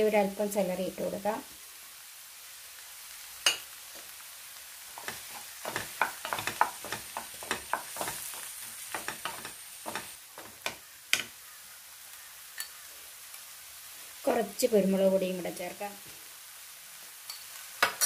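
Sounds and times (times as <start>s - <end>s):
tomatoes sizzling in oil: 0.0s - 18.0s
spatula scraping a pan: 5.0s - 11.3s.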